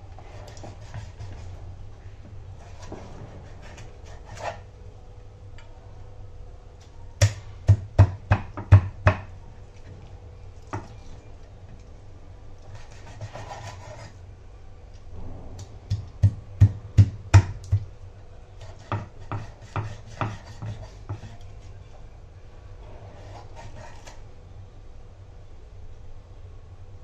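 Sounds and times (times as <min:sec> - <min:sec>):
knife scrape: 0:00.2 - 0:01.6, 0:02.6 - 0:04.7, 0:12.6 - 0:14.2, 0:18.6 - 0:21.6, 0:23.0 - 0:24.2
knife chopping on wooden board: 0:18.6 - 0:21.4.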